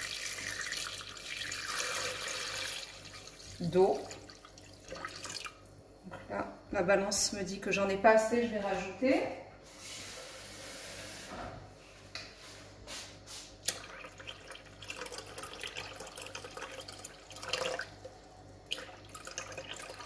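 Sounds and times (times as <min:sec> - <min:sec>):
water pouring into steel bowl: 0:00.0 - 0:05.6, 0:13.8 - 0:18.0, 0:18.6 - 0:20.0.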